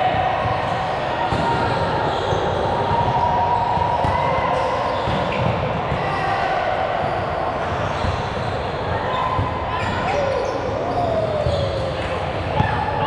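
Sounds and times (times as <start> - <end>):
faint voices: 5.7 - 13.0.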